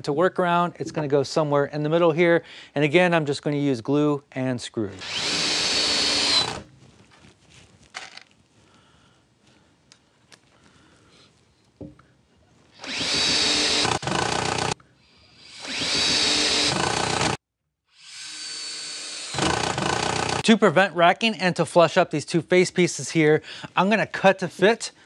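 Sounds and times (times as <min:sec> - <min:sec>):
drill motor whine: 0:05.0 - 0:06.6, 0:12.8 - 0:20.4.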